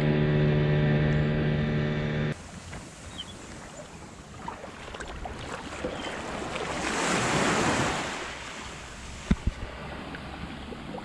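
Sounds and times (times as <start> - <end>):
small waves washing on beach: 2.4 - 11.0.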